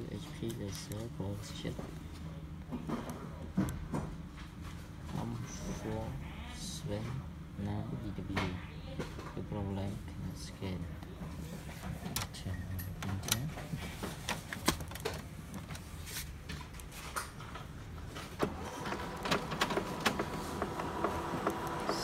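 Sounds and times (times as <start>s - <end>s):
printer mechanism whirring: 18.0s - 22.0s
printer clicks: 18.4s - 22.0s.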